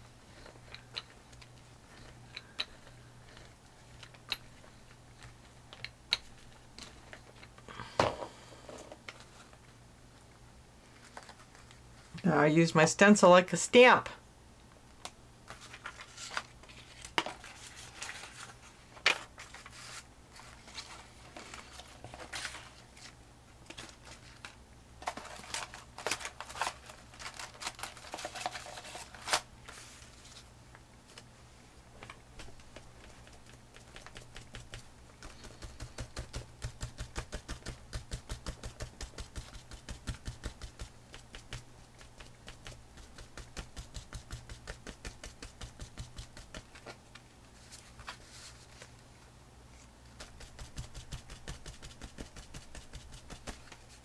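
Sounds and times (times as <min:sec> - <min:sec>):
plastic stencils clicking and rustling: 0:23.7 - 0:29.5.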